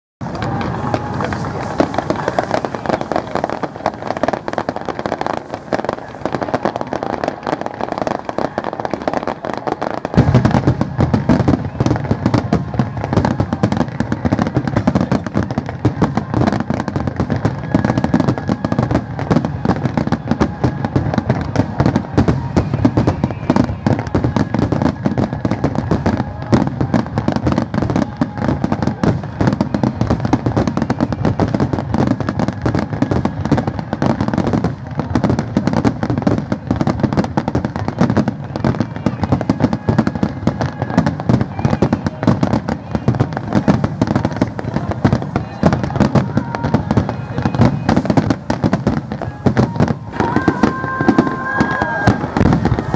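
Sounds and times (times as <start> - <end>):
fireworks shells bursting: 0.2 - 20.3
fireworks crackling: 0.2 - 52.9.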